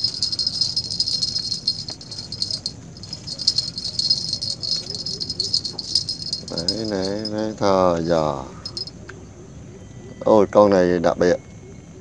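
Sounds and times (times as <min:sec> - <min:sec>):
insects chirring: 0:00.0 - 0:09.0.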